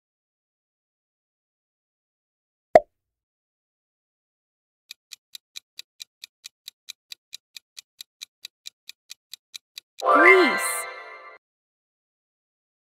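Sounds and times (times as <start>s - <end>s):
clock ticking timer: 4.9s - 10.5s.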